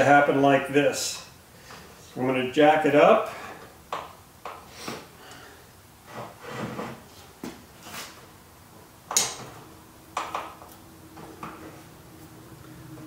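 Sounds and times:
wood and metal knocks and scrapes: 6.0s - 8.2s.

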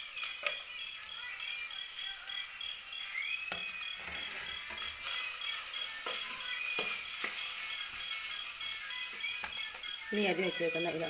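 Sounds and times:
onions sizzling in oil: 0.0s - 11.0s
metal spoon scraping a pot: 4.0s - 5.3s.

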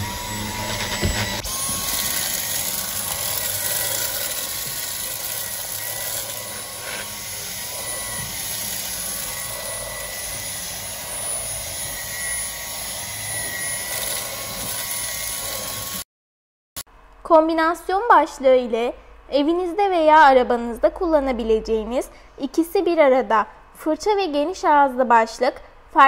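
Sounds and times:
cordless vacuum whining: 0.0s - 16.0s.

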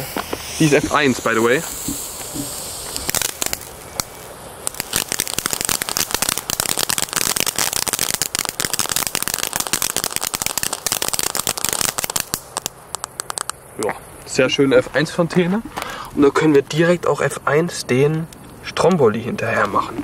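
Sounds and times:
firework fountain hissing and crackling: 0.0s - 14.7s.

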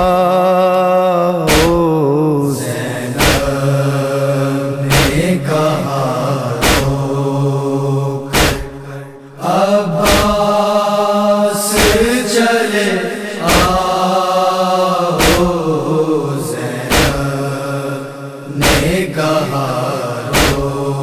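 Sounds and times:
person chanting a lament: 0.0s - 21.0s
chest-beating strikes: 4.9s - 5.2s, 8.3s - 8.8s, 10.0s - 10.4s, 18.6s - 18.9s.

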